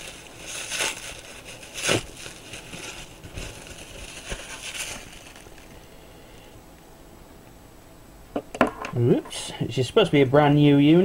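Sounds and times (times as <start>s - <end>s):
plastic packaging crinkling: 0.0s - 6.0s.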